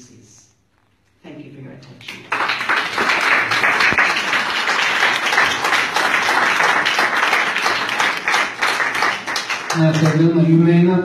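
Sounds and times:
audience applauding: 2.1s - 10.6s.

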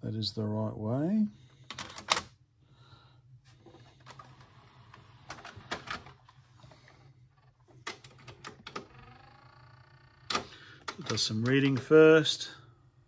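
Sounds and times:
faint motor whir: 3.5s - 10.4s.

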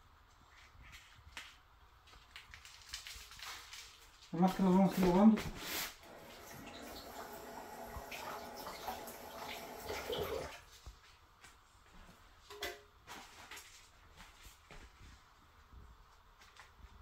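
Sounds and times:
tap running with water splashing: 6.0s - 10.7s.

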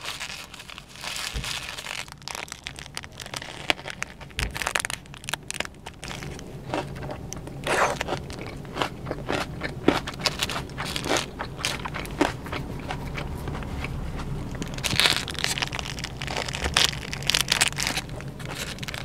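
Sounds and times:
crunchy chewing: 0.0s - 19.0s
low car hum: 0.0s - 19.0s.

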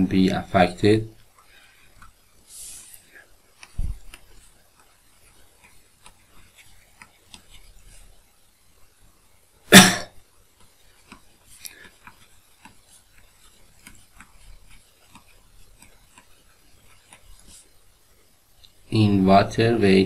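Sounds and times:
pen scratching on tablet: 0.5s - 8.9s, 10.4s - 18.0s
person coughing: 9.7s - 10.2s.

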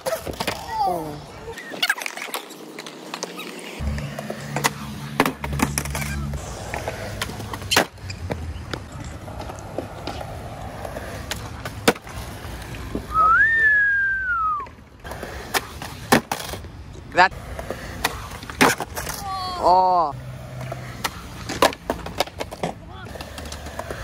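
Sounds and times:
skateboard wheels rolling on concrete: 0.0s - 24.0s
skateboard clacks and knocks: 20.5s - 24.0s.

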